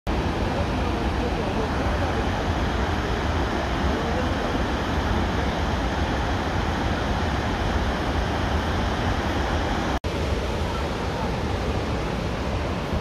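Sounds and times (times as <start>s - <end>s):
floodwater rushing through spillway: 0.1s - 13.0s.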